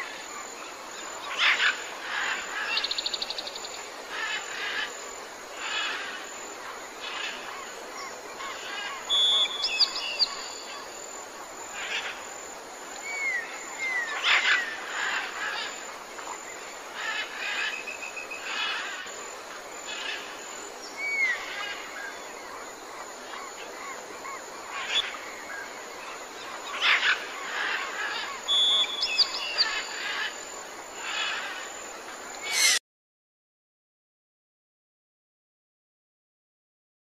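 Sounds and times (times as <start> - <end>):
steady hiss: 0.0 - 32.8
bird chirps and calls: 8.6 - 10.7, 28.5 - 29.9, 32.4 - 32.8
loud bird cries: 26.6 - 30.4, 32.4 - 32.8.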